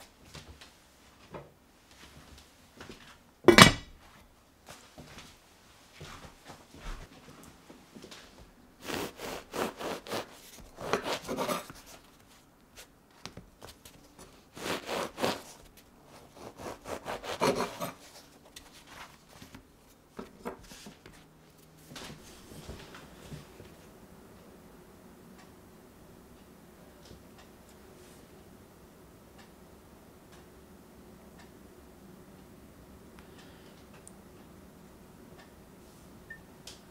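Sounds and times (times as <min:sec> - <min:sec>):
crusty bread scraping on wood: 0:08.8 - 0:12.9, 0:13.6 - 0:21.2.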